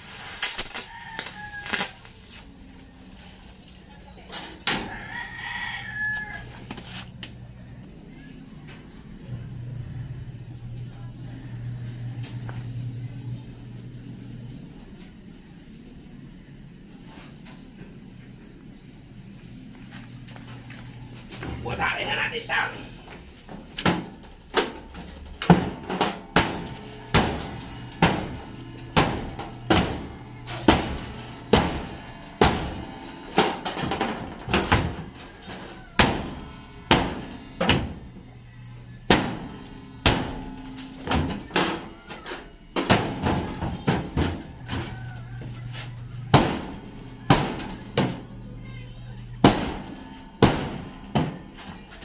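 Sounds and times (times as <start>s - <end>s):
hammer striking sheet metal: 25.5s - 38.2s, 39.0s - 41.9s, 49.4s - 51.4s.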